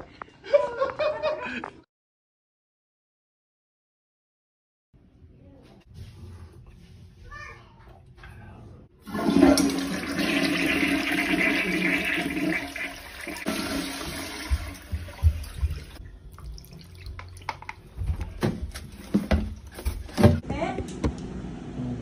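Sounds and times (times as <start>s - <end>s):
toilet flushing: 9.0s - 17.6s.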